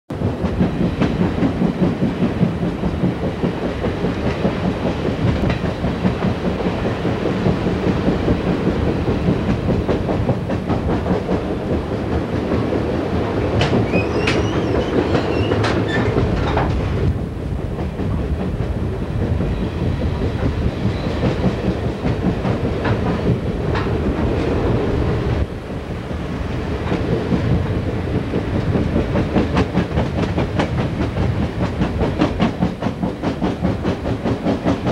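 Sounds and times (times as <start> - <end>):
clickety-clack over rail joints: 0.1 - 34.9
train wheels rumbling on rails: 0.1 - 34.9
high wheel squeal: 13.8 - 16.1.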